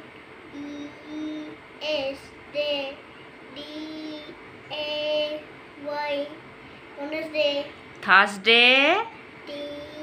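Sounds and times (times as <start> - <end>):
child chanting letters: 0.5 - 6.4, 7.0 - 7.8, 9.4 - 10.0.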